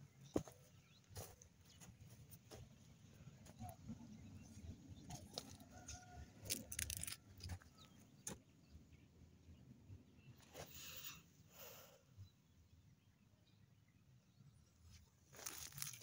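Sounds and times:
sharp clicks and crackles: 6.4 - 7.6.

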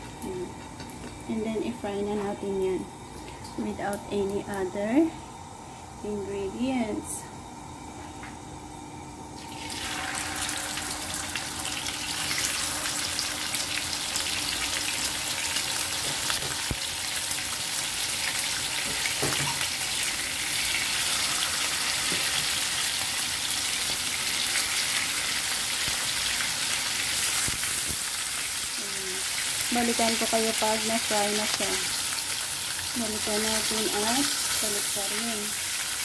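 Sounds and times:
fish sizzling in hot oil: 9.4 - 36.0.

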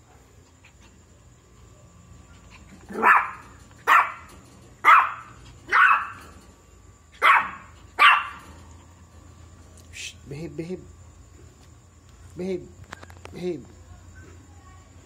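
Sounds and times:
puppy barking: 2.8 - 6.3, 7.2 - 8.4.

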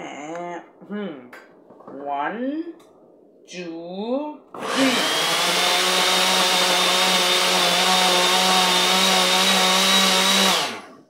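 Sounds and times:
electric blender running: 4.6 - 11.0.

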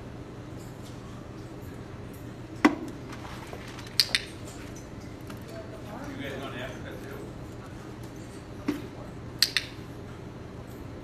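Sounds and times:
steady low hum: 0.0 - 11.0
sharp clicks: 9.4 - 9.8.

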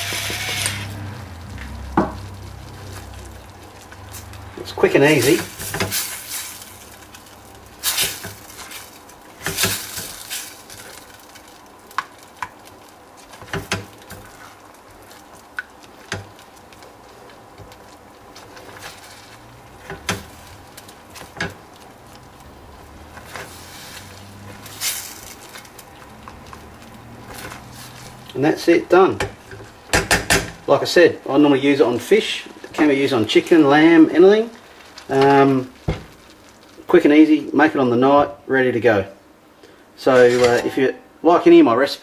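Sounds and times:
utensil scraping saucepan: 0.0 - 1.3, 23.0 - 26.6, 40.1 - 41.0
simmering pan hiss: 0.0 - 42.0.

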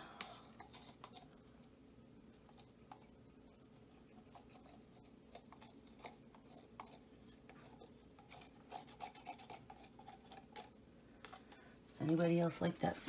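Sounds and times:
plastic cup scraping canvas: 4.2 - 12.2.

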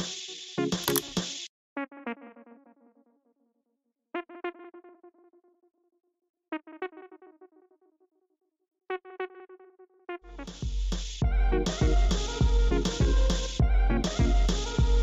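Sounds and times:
beat with heavy bass and drums: 0.0 - 1.4, 10.4 - 15.0
soft synthesizer chords: 10.3 - 15.0.

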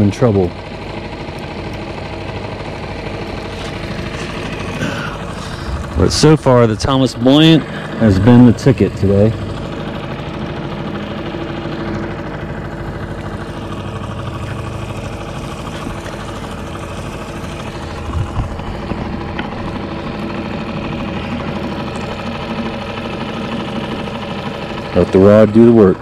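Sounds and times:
outboard motor idling: 0.0 - 26.0.

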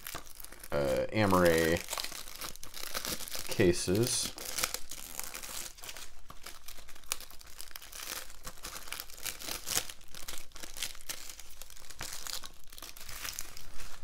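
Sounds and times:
plastic wrap crinkling and tearing: 0.0 - 14.0.

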